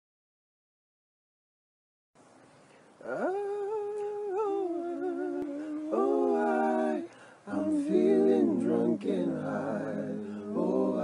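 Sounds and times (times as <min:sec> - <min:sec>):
layered voices in harmony: 0:03.0 - 0:11.0
man humming a cappella: 0:03.0 - 0:11.0.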